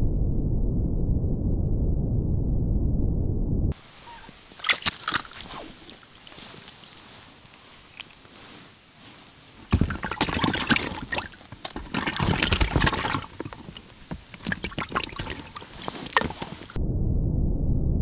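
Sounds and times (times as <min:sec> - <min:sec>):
water sloshing and splashing: 0:03.8 - 0:16.8.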